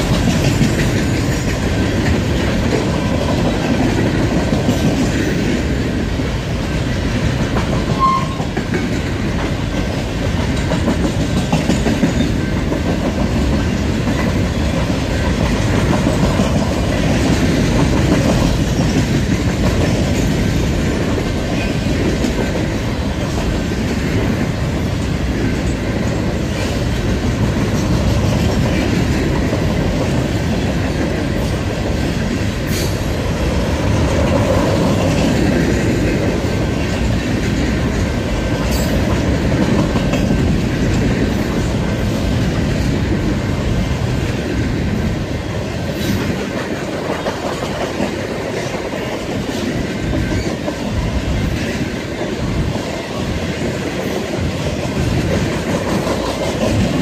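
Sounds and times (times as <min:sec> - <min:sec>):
wheels clicking over rail joints: 0:00.0 - 0:05.8, 0:06.4 - 0:57.0
steel wheels on rails: 0:00.0 - 0:57.0.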